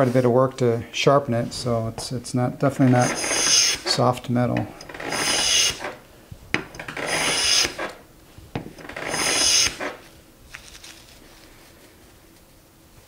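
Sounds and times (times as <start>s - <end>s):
hand plane cutting wood: 2.9s - 4.0s, 4.9s - 6.0s, 6.8s - 8.0s, 8.8s - 10.0s.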